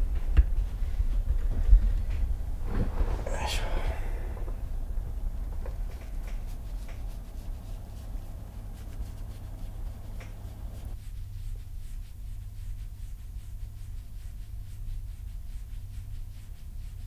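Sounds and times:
low steady rumble: 0.0s - 17.0s
fingers scratching cat fur: 5.4s - 17.0s.

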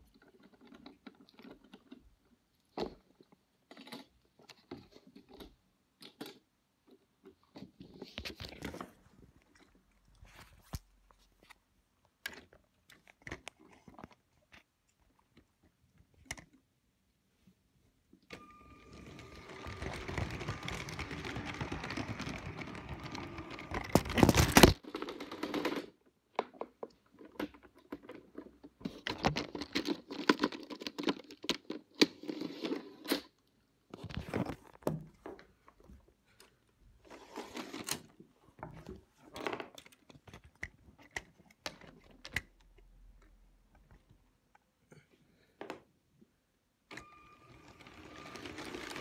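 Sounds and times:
objects rubbing and rustling: 18.4s - 25.9s.

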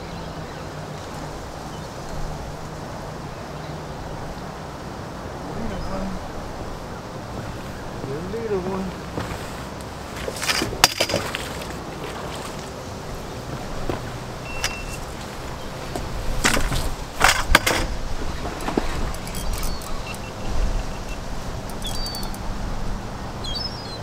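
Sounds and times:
low outdoor rumble: 0.0s - 23.7s
footfalls on wooden boards: 13.8s - 14.1s.

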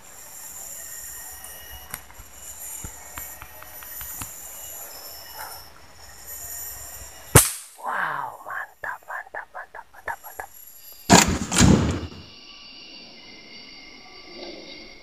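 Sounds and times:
insects droning: 0.0s - 15.0s
rifle shot: 7.4s - 7.7s, 11.1s - 12.3s.

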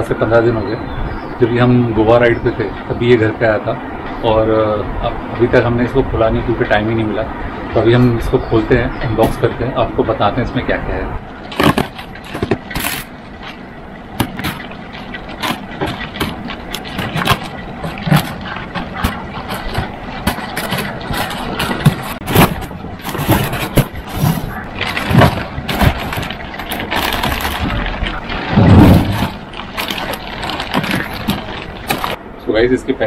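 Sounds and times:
plastic wrap crinkling and tearing: 14.2s - 32.2s.

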